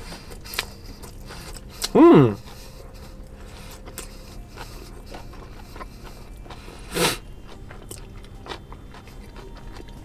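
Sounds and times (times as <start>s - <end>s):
person chewing crunchy food: 0.0s - 10.0s.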